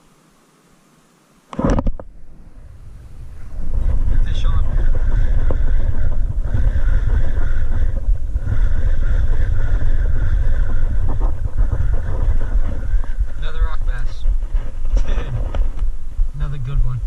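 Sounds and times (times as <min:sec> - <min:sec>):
wind buffeting microphone: 0:01.6 - 0:17.0.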